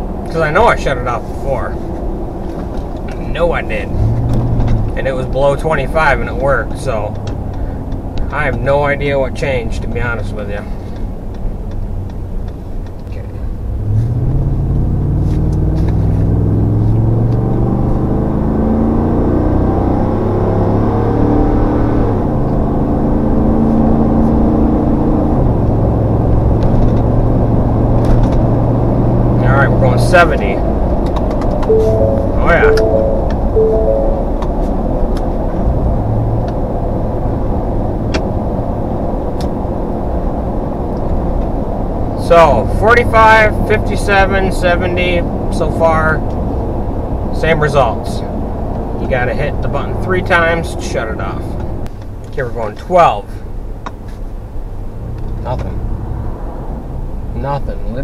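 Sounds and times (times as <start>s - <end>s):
road noise: 0.0s - 58.0s
truck engine accelerating: 13.6s - 42.1s.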